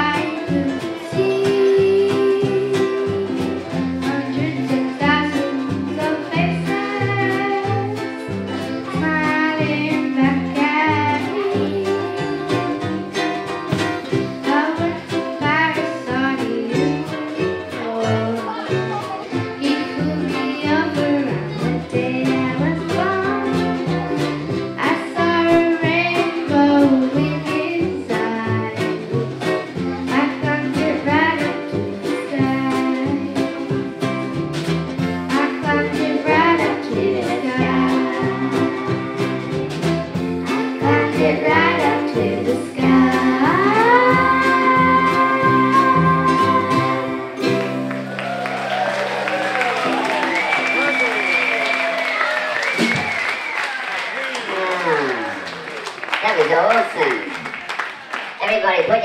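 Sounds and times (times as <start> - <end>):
girl singing: 0.0 - 13.3, 14.4 - 29.2, 29.8 - 33.7, 35.2 - 39.7, 40.4 - 47.4
strummed ukulele: 0.0 - 55.7
small live band: 0.0 - 59.0.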